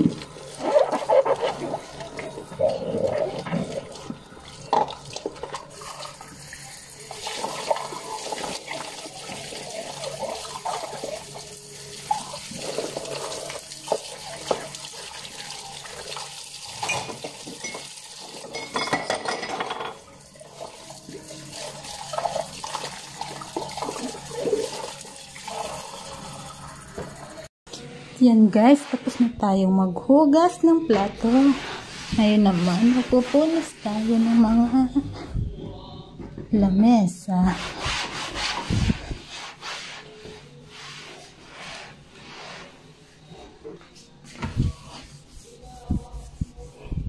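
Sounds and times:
tap water running into sink: 3.3 - 27.4
glassware clinking and knocking: 16.8 - 20.1.

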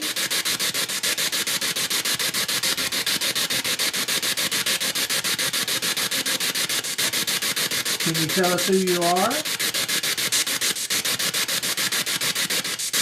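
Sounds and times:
pulsing radio static: 8.0 - 9.5.

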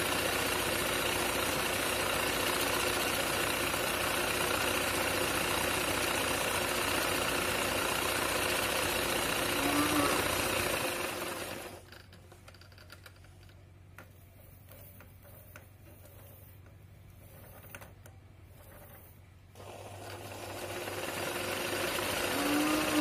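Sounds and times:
sewing machine running: 0.0 - 12.0, 19.6 - 23.0.

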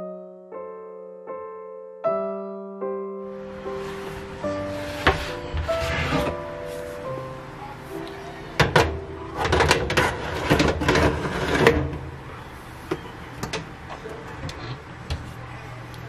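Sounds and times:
metal pans clunking on oven rack: 8.6 - 12.2.

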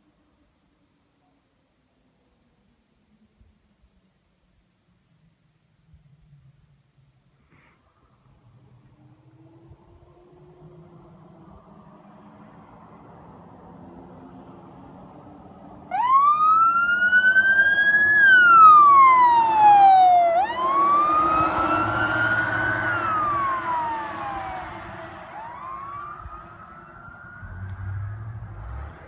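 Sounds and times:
road noise: 5.3 - 29.0
fire truck siren wailing: 15.7 - 29.0.

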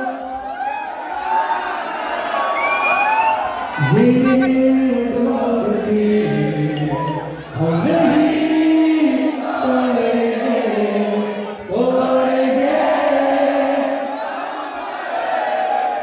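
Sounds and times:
men chanting in unison: 3.8 - 14.4.

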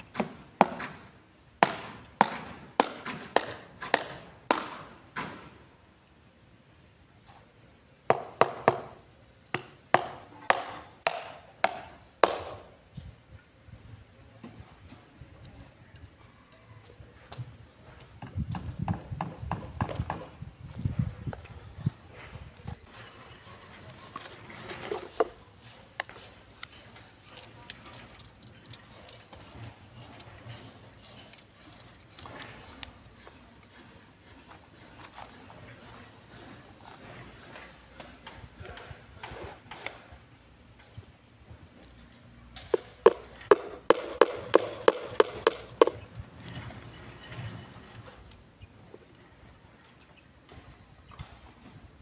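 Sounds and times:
hammer knocking on wood: 8.1 - 8.9, 9.5 - 12.5, 18.2 - 20.3
hand tool knocking on concrete: 42.8 - 46.0.

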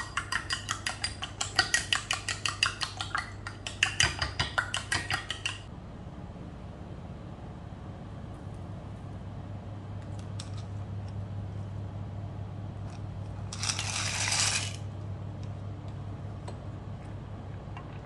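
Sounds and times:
steady low hum: 5.6 - 18.0.

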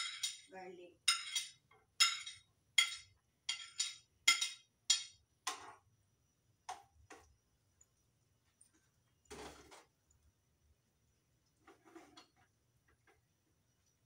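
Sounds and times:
metal spoon clinking on plate: 0.0 - 5.7.

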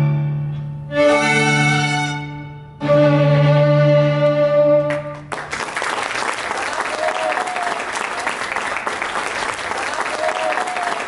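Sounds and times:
violins holding a chord: 0.0 - 5.4
audience applause: 5.2 - 11.0.

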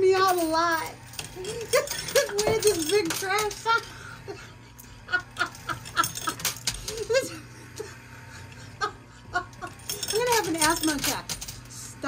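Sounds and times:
person laughing hard: 4.0 - 9.8.

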